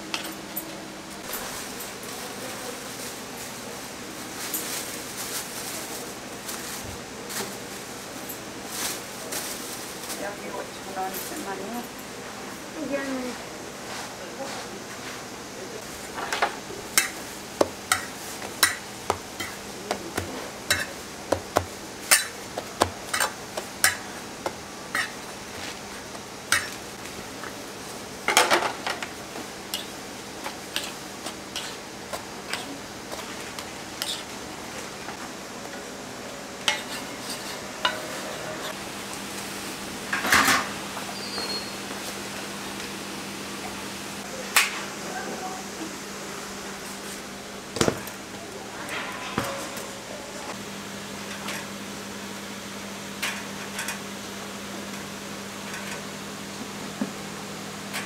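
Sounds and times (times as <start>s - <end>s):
utensils clattering: 15.8s - 24.2s, 24.9s - 26.8s, 28.2s - 30.0s, 30.6s - 31.8s, 32.4s - 34.4s, 36.6s - 38.8s, 48.7s - 50.6s
metal utensils scraping on griddle: 17.9s - 21.0s, 24.9s - 25.8s, 30.7s - 31.8s, 34.0s - 34.3s, 36.7s - 38.8s, 48.8s - 50.1s.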